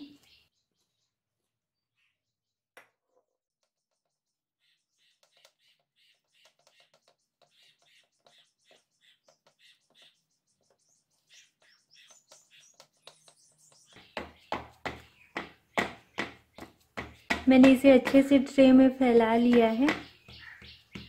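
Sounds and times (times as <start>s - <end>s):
spatula scraping and tapping: 3.1s - 21.0s
spatula knocking on steel tray: 13.8s - 21.0s.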